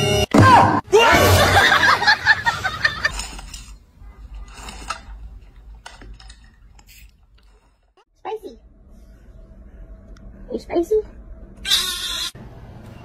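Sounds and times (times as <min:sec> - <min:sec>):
people laughing: 0:01.1 - 0:03.2.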